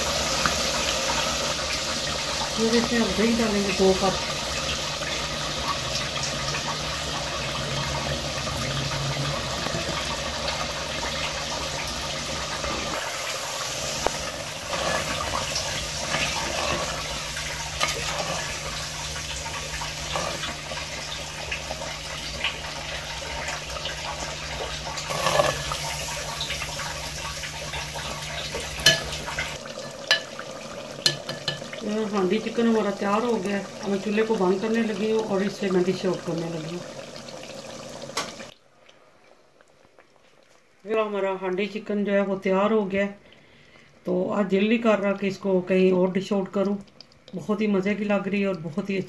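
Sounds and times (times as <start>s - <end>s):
curry bubbling: 0.0s - 41.9s
spatula scraping pot: 12.5s - 21.2s, 25.0s - 30.4s.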